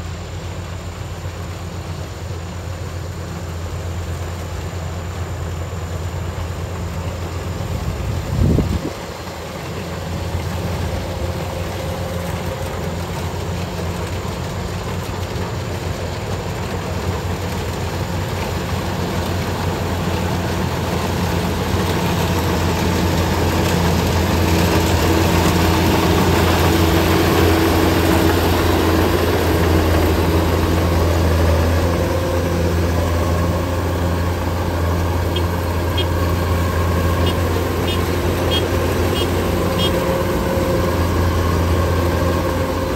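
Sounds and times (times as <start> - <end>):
combine harvester running: 0.0 - 42.9.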